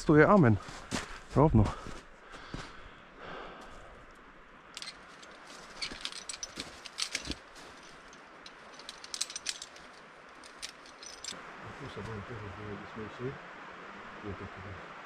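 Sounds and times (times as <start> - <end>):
faint background hiss: 0.0 - 15.0
light clicks and clinks: 4.1 - 11.4.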